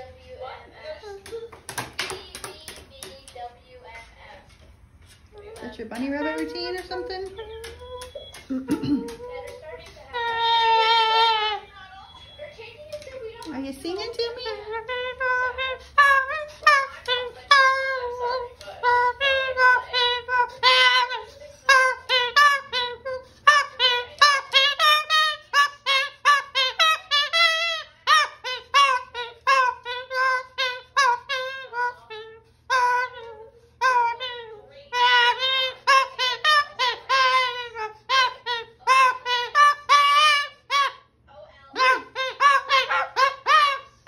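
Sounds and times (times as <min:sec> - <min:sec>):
cockatoo warbling: 0:10.1 - 0:11.7, 0:14.7 - 0:41.1, 0:41.7 - 0:44.0.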